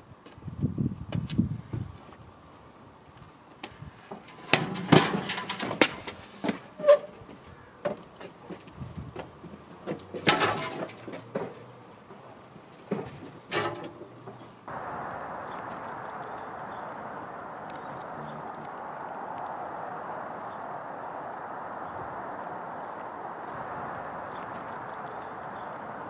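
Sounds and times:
metal clattering bursts: 4.2 - 7.1, 9.8 - 12.1
metal rack clanking and rattling: 4.2 - 7.1, 9.8 - 12.1, 12.8 - 14.6.

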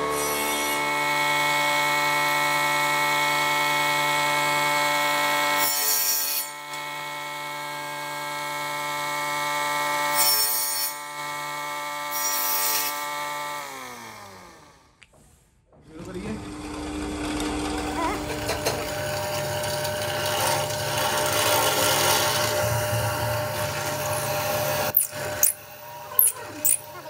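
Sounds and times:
table saw motor whine: 0.0 - 14.9, 16.3 - 27.0
saw cutting antler: 20.0 - 27.0.

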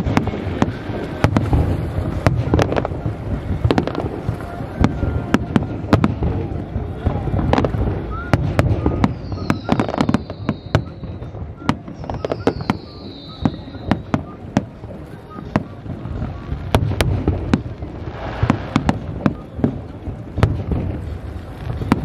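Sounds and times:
fireworks bangs and crackles: 0.0 - 22.0
high whistle sliding down: 12.1 - 14.2.

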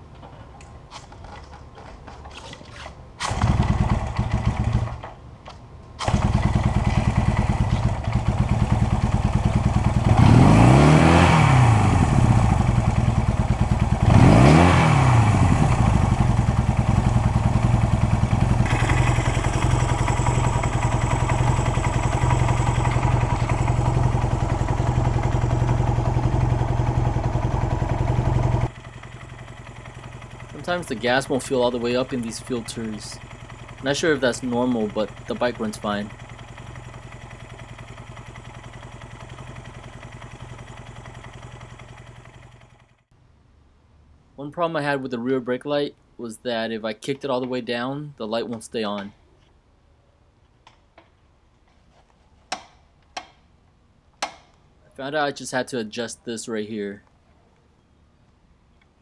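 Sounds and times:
motorcycle kick-start clicks: 0.9 - 8.2
motorcycle engine revving and idling: 3.2 - 5.2, 6.0 - 43.1.

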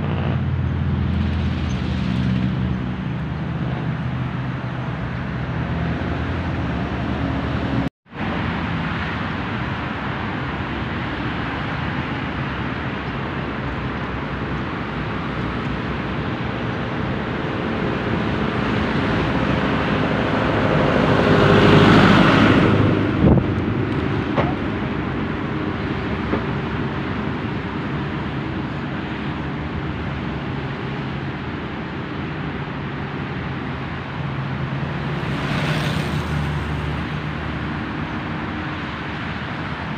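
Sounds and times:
road traffic: 0.0 - 39.9
vehicle passing close: 15.0 - 29.8, 33.7 - 39.9.

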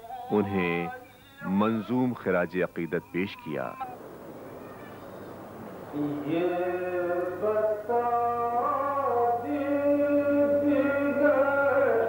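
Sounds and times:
man chanting: 5.9 - 12.0.

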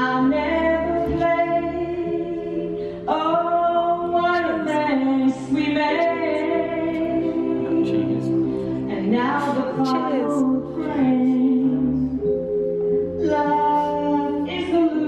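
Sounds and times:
keyboard accompaniment: 0.0 - 15.0
woman singing held notes: 9.3 - 11.4.

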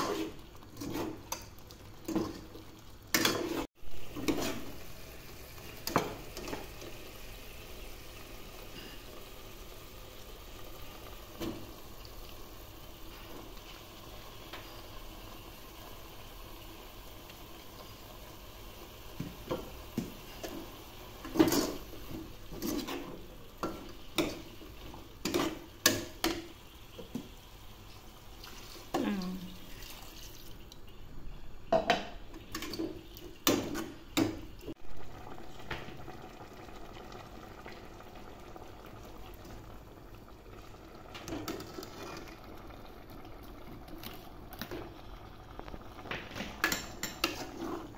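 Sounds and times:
broth pouring into a pot: 27.5 - 30.6, 34.7 - 46.4.

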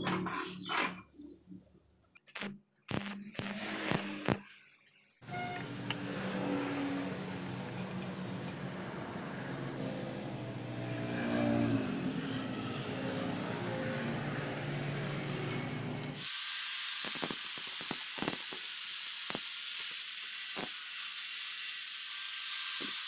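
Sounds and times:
angle grinder hissing: 5.2 - 8.6, 16.1 - 23.0.

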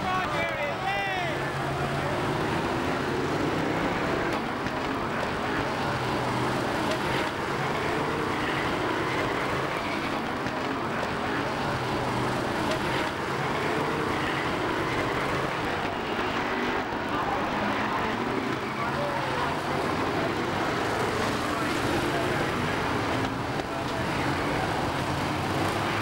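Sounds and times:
racing car engines: 0.0 - 26.0.

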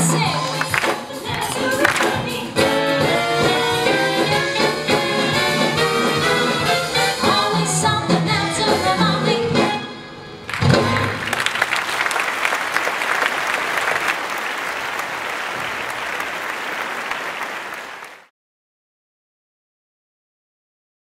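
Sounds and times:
live band music: 0.0 - 12.1
audience applauding: 0.4 - 2.4, 10.5 - 18.3.

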